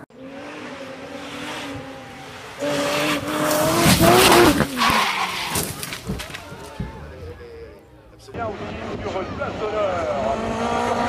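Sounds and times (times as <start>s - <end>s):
rally car engine: 0.0s - 11.0s
tyres skidding: 0.0s - 11.0s.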